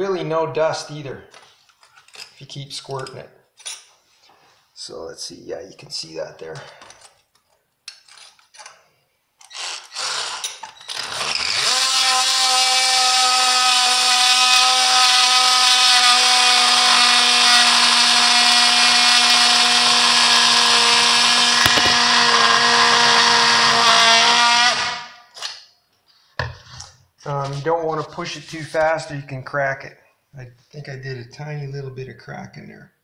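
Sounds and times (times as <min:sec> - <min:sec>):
power saw cutting tile: 0:09.5 - 0:25.6.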